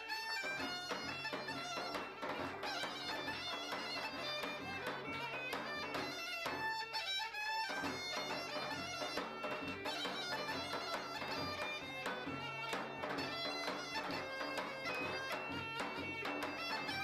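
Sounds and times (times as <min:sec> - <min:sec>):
bagpipe folk melody with drone: 0:00.0 - 0:17.0
large drum beating: 0:07.9 - 0:17.0.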